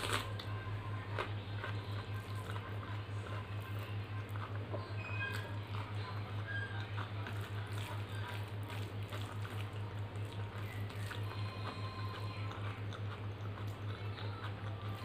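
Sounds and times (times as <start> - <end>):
chewing: 0.0 - 15.0
wet squishing of food by hand: 3.6 - 13.9.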